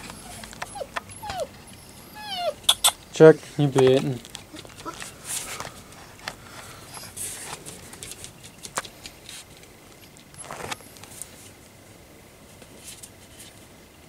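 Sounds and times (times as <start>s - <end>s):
puppy paws on wooden floor: 0.0s - 2.6s, 3.3s - 11.3s.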